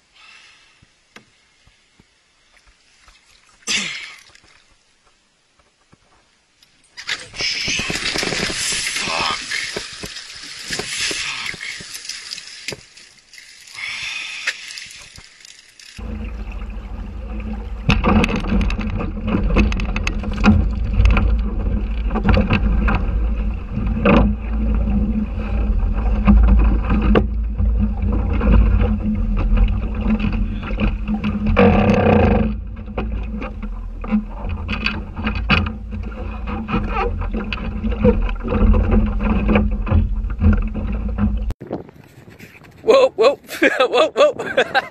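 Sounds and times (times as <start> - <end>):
water splashing around canoe: 7.0 - 42.8
boat motor rumbling: 16.0 - 41.6
wind on microphone: 16.0 - 44.9.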